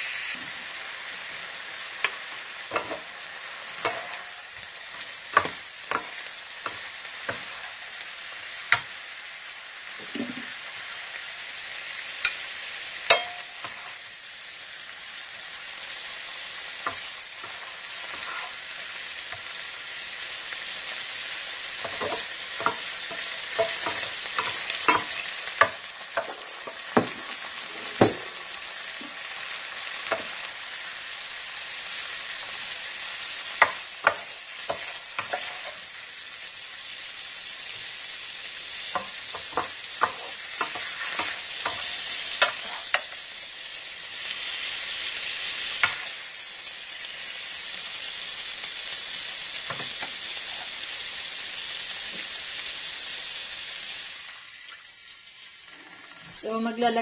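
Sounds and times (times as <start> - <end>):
food sizzling in a skillet: 0.0 - 57.0
spatulas scraping food: 17.4 - 18.7, 39.0 - 43.1.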